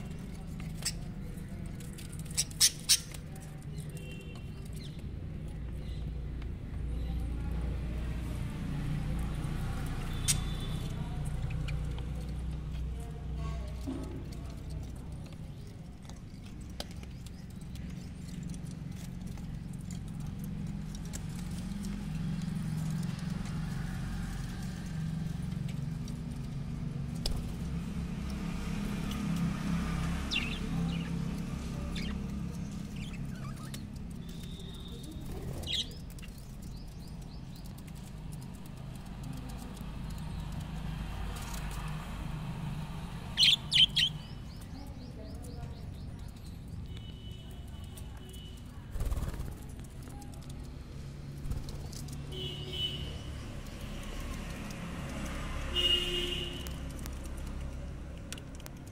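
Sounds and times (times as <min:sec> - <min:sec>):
birds pecking on wood: 0:00.0 - 0:58.9
budgerigars squawking and chirping: 0:43.3 - 0:44.6
sharp clicks: 0:53.0 - 0:58.9.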